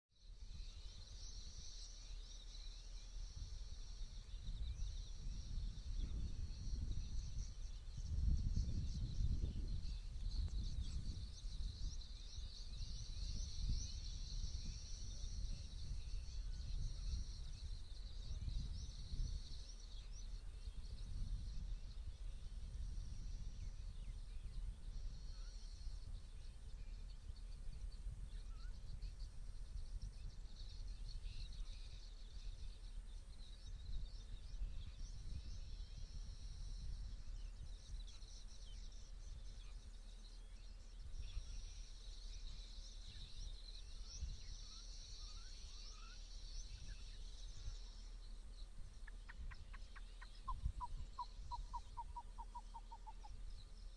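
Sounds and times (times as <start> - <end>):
birds and insects chirping: 0.1 - 53.9.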